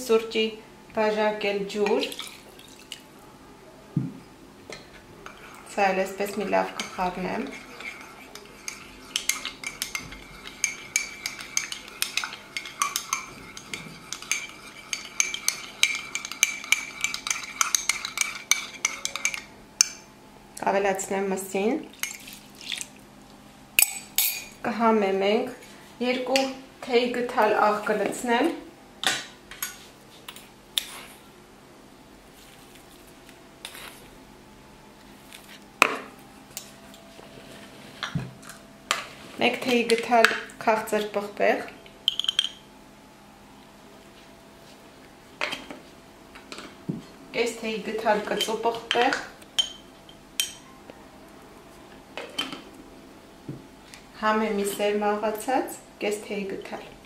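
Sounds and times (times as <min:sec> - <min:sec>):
teaspoon scraping salt in jar: 0:06.8 - 0:19.2
spoon clinking in ceramic cup: 0:42.0 - 0:42.6.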